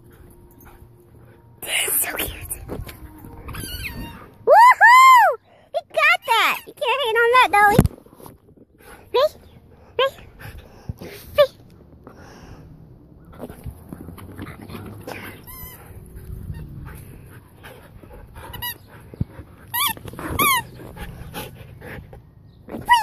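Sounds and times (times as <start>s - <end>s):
huskies whining: 2.7s - 5.2s, 13.3s - 23.0s.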